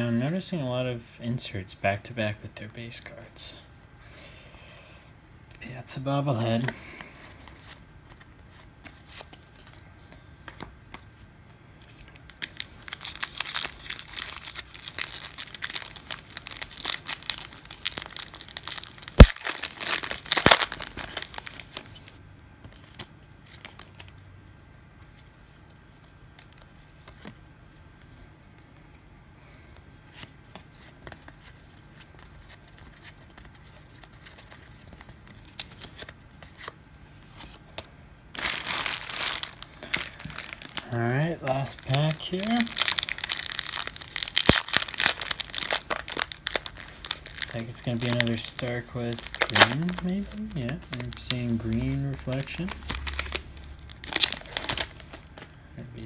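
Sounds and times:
wrapper crinkling and tearing: 12.2s - 22.2s, 38.3s - 55.6s
handling noises with light ticks: 25.0s - 29.0s.

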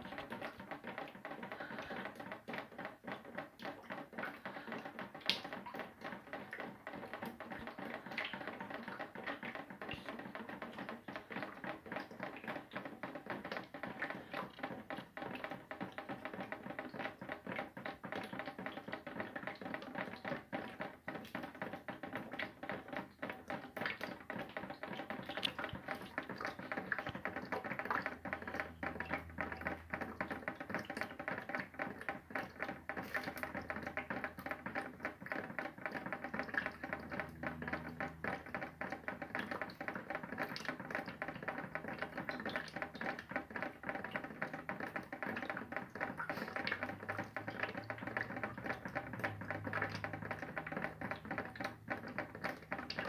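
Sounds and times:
rapid tapping on buckets: 0.0s - 53.0s.

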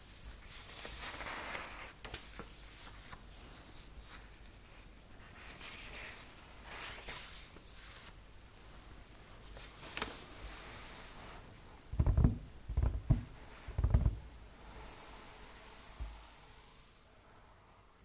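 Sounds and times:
paper cards rustling and sliding: 0.4s - 4.3s, 5.2s - 8.2s, 9.5s - 11.4s.

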